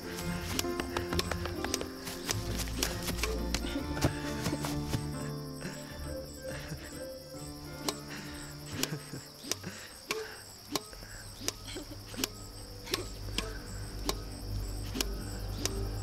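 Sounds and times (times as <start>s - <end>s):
film score music: 0.0s - 16.0s
sharp steady tick: 8.7s - 16.0s.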